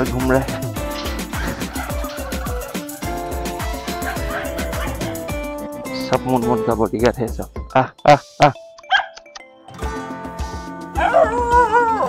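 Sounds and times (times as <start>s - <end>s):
background music: 0.0s - 12.0s
dogs barking: 0.4s - 5.6s, 8.9s - 9.2s, 11.0s - 12.0s
dog yelp: 0.9s - 3.0s, 3.6s - 5.2s, 8.9s - 9.2s, 11.0s - 12.0s.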